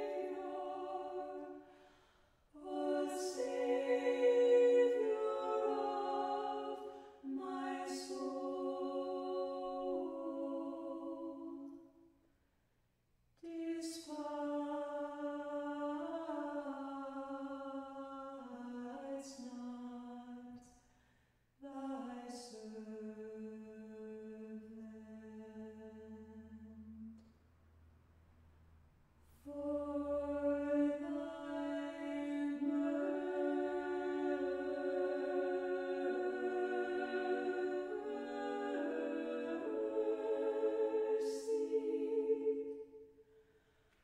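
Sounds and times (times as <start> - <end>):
choir singing a cappella: 0.0 - 12.0, 13.4 - 20.7, 21.6 - 27.3, 29.4 - 43.6.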